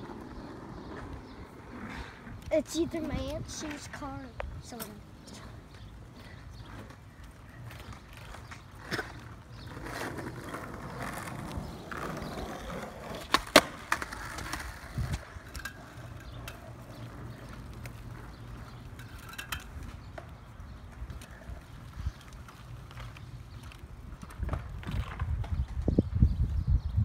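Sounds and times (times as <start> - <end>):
skateboard wheels rolling on asphalt: 0.0 - 27.0
skateboard clacks: 7.6 - 21.6.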